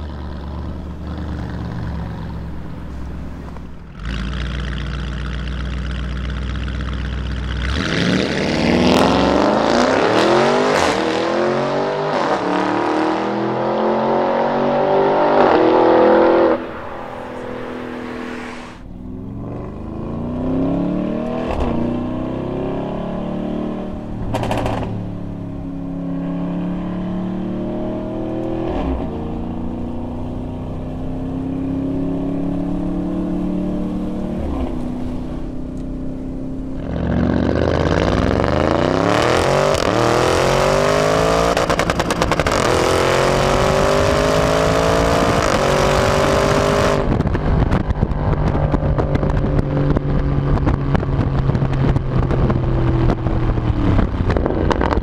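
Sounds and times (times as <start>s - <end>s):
exhaust cracks: 0.0s - 8.8s, 24.0s - 25.4s, 41.5s - 44.1s, 45.3s - 55.0s
car engine accelerating: 0.0s - 55.0s.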